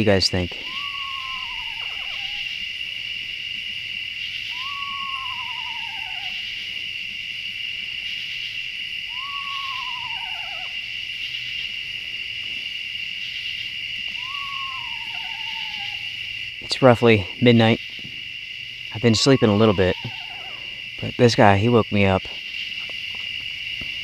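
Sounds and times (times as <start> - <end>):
night insects chorus: 0.0 - 24.0
owl quavering whinny call: 0.4 - 3.2, 4.2 - 6.9, 8.0 - 11.6, 13.2 - 16.5, 18.9 - 20.9.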